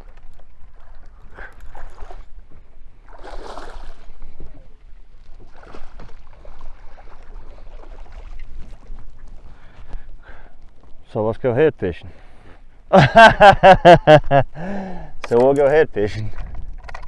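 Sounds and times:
water splashing: 0.0s - 10.0s.

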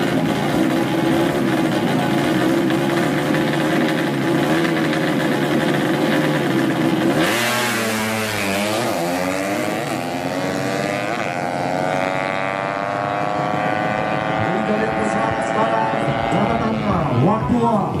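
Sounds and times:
motorcycles accelerating hard: 0.0s - 18.0s.

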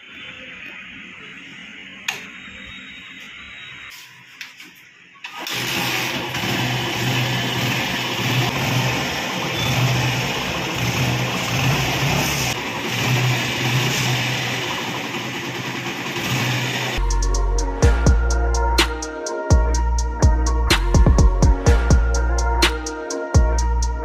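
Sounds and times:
motorcycle engine revving: 5.4s - 17.1s.

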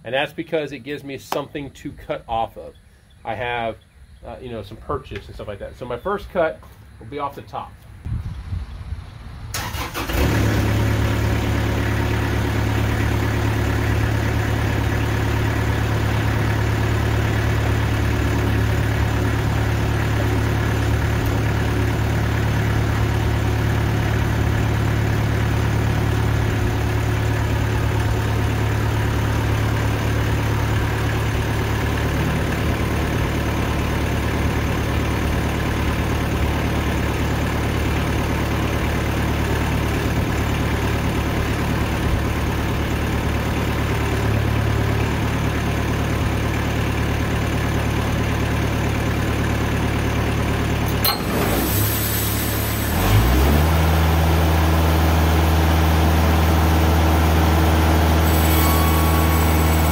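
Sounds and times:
band sawmill engine and blade: 9.5s - 59.9s.

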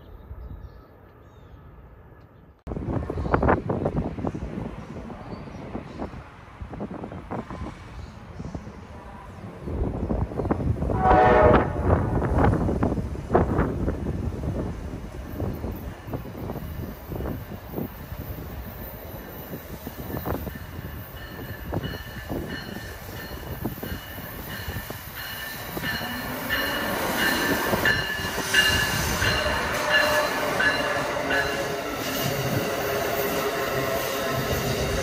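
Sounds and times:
passenger train rumbling: 0.0s - 35.0s
steel wheels squealing on rails: 15.3s - 35.0s.

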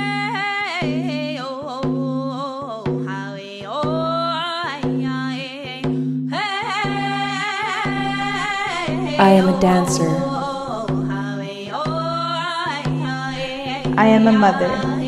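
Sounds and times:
low instrument repeated notes: 9.0s - 11.2s, 13.3s - 15.0s.

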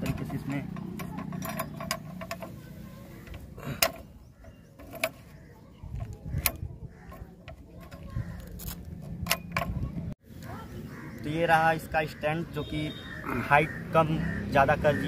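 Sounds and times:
metal spring clinking against post: 0.0s - 10.0s.

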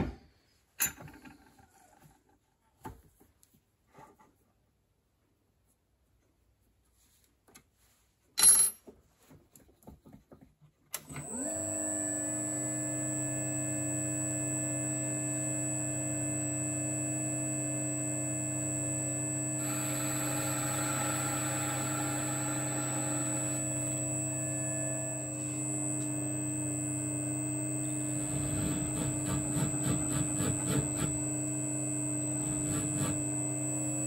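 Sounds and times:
lathe motor humming with whine: 11.1s - 34.0s
cutting tool hiss: 19.6s - 24.0s, 27.8s - 31.4s, 32.2s - 33.6s.

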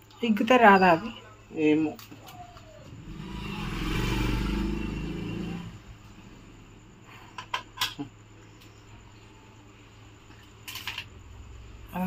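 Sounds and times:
vehicle engine passing by: 2.9s - 6.8s.

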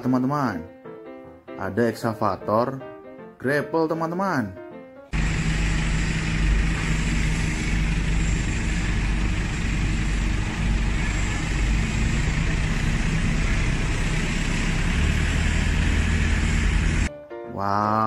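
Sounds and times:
diesel engine rumbling: 5.2s - 17.1s.

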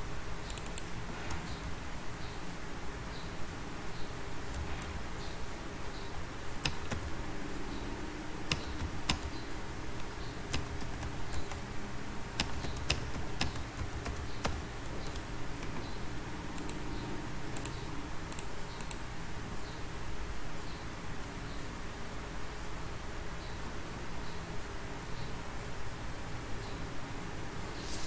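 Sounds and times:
steady background hiss: 0.0s - 28.0s
light high ticks: 0.4s - 1.4s
computer key and mouse clicks: 0.4s - 1.6s, 4.5s - 5.0s, 6.1s - 7.8s, 8.4s - 11.7s, 12.4s - 16.0s, 16.6s - 16.8s, 17.5s - 19.0s.

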